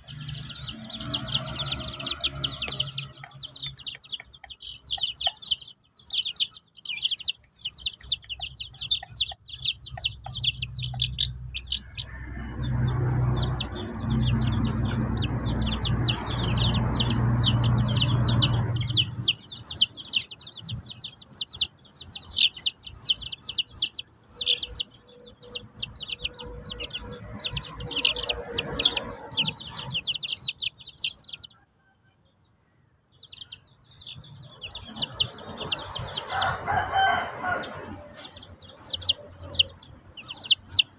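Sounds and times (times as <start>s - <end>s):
low rumbling noise: 0.0s - 31.4s
chicks peeping: 0.0s - 40.9s.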